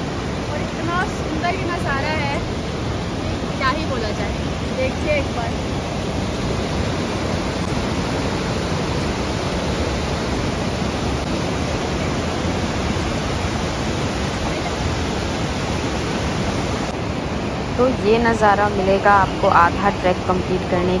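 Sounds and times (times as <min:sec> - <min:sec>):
stream rushing over rocks: 0:00.0 - 0:21.0.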